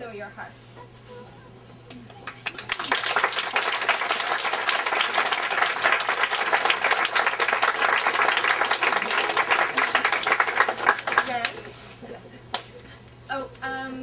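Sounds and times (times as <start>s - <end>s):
crowd applauding: 2.2s - 11.6s.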